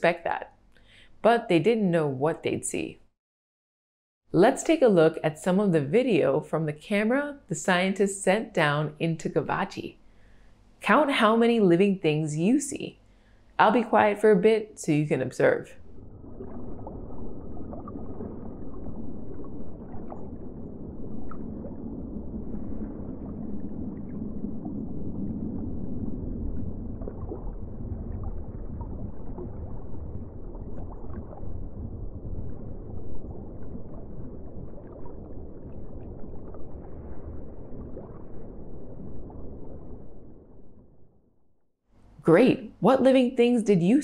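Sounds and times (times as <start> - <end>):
underwater rushing rumble: 15.8 - 41.4.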